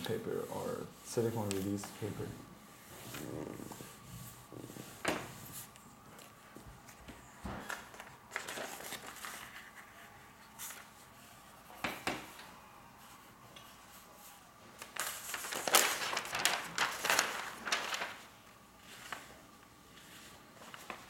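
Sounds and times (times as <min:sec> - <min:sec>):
paper rustling and crinkling: 0:02.8 - 0:21.0.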